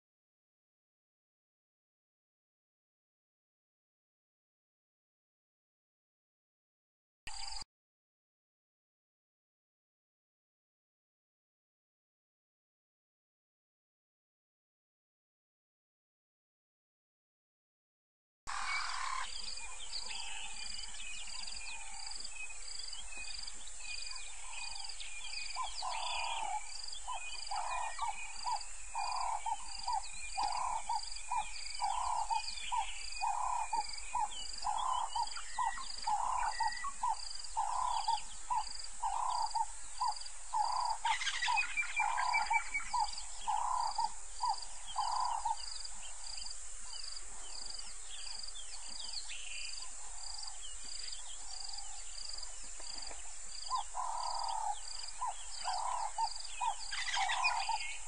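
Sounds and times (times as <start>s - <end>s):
bird chirps: 18.5s - 58.0s
frogs calling: 18.5s - 58.0s.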